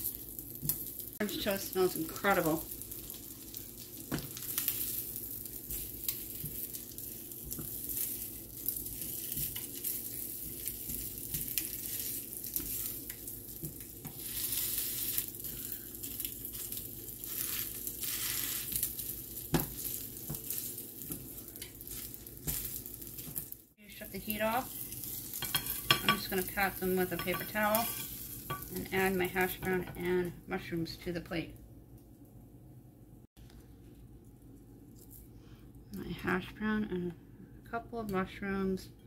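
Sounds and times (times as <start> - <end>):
sausages sizzling in a frying pan: 0.0 - 30.3.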